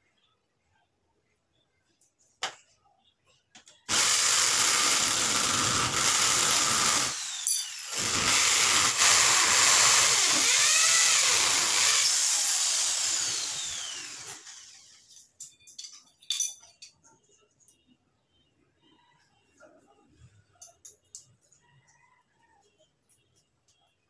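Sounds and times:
electric drill boring into tile: 0:03.9 - 0:15.1.

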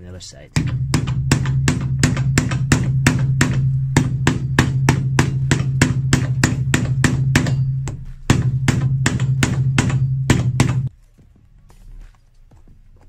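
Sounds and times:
hammer rapping on nails: 0:00.5 - 0:10.9.

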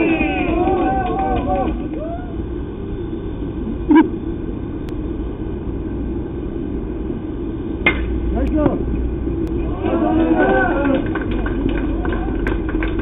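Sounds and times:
people shouting: 0:00.0 - 0:02.4, 0:09.6 - 0:11.1
low outdoor rumble: 0:00.0 - 0:13.0.

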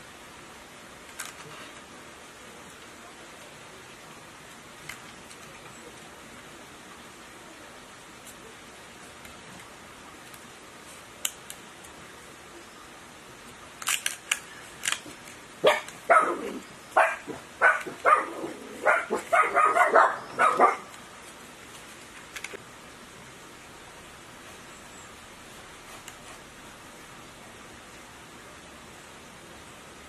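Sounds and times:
sharp clicks: 0:13.8 - 0:16.0
dog barking: 0:15.6 - 0:20.9.

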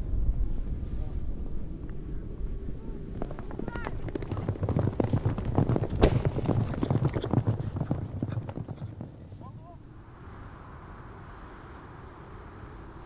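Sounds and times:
horses galloping on grass: 0:02.8 - 0:09.8
sharp crack: 0:05.8 - 0:07.2.

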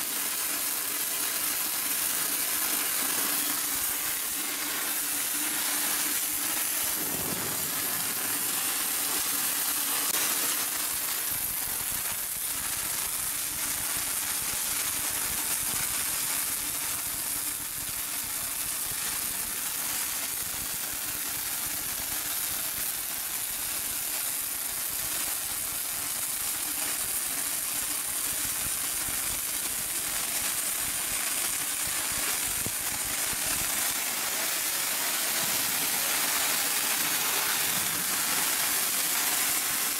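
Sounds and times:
welding arcs crackling: 0:00.0 - 0:39.9.

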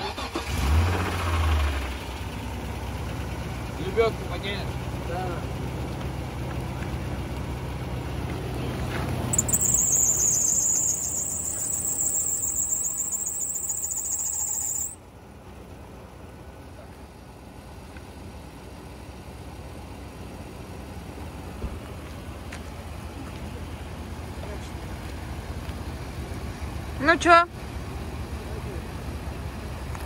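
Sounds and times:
low engine hum: 0:01.0 - 0:30.0
loud high-pitched engine squeal: 0:09.3 - 0:15.0.

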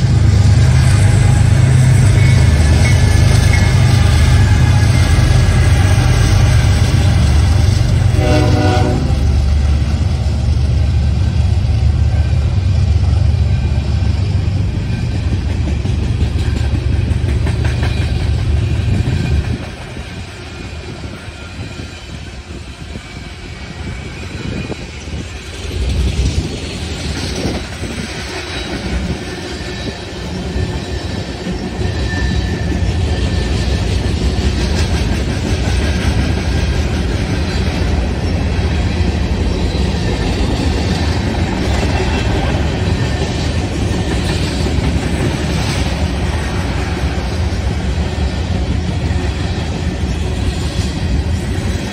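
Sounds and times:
freight cars rumbling: 0:00.0 - 0:51.9
wheels clacking over rail joints: 0:13.8 - 0:21.2.

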